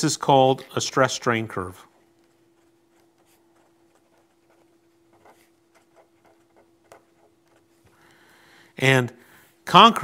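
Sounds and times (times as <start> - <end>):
faint steady hum: 0.0 - 10.0
pen writing on paper: 2.2 - 7.8.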